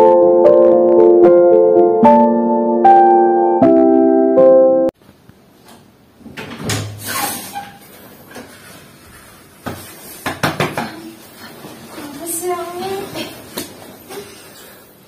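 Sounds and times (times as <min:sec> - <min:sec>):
bedding rustling: 0:11.2 - 0:14.5.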